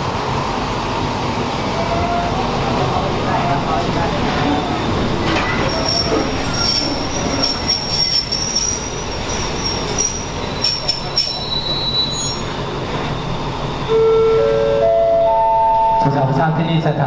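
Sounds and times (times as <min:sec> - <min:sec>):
train rumble: 0:00.0 - 0:17.0
train wheels squealing: 0:04.5 - 0:13.9
station chime: 0:13.9 - 0:16.4.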